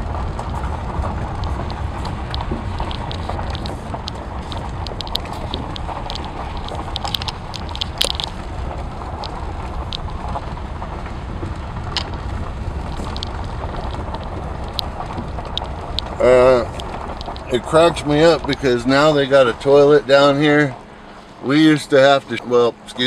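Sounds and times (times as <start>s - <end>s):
car engine and tyres rumbling: 0.0s - 23.0s
light ticks and clicks: 0.2s - 20.9s.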